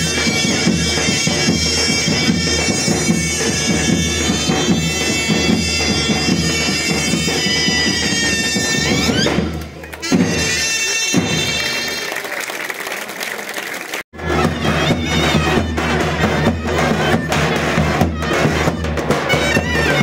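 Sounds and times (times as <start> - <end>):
steady drum beat: 0.0 - 11.8, 14.2 - 20.0
shrill double-reed shawms: 0.0 - 12.2.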